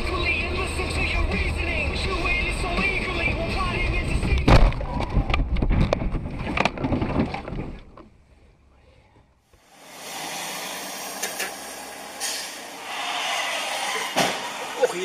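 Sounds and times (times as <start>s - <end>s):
tyres hissing on wet road: 9.6s - 12.8s.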